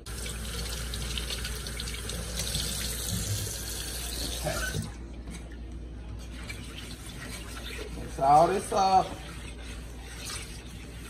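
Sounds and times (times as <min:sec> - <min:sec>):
faucet running into sink: 0:00.0 - 0:04.9
mushrooms rinsed by hand: 0:00.0 - 0:11.0.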